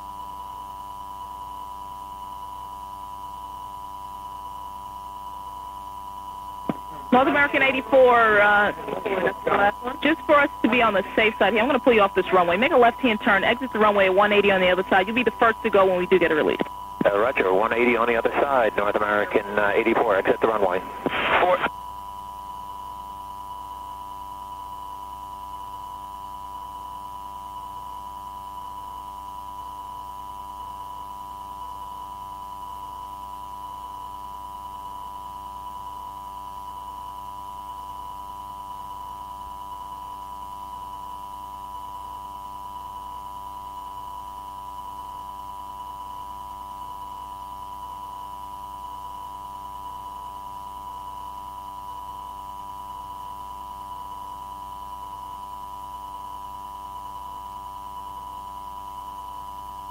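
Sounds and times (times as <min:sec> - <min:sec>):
steady electronic tone: 0:06.7 - 0:21.5.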